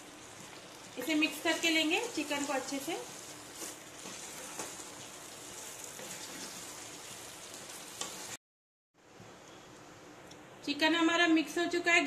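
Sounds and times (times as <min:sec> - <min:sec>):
gravy sizzling in a pan: 0:00.0 - 0:08.4
spatula scraping pan: 0:03.0 - 0:08.4.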